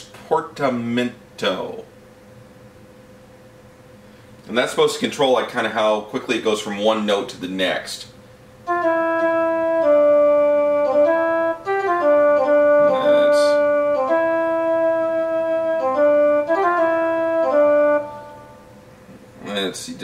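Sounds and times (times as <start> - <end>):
theremin synthesizer notes: 8.7 - 18.4.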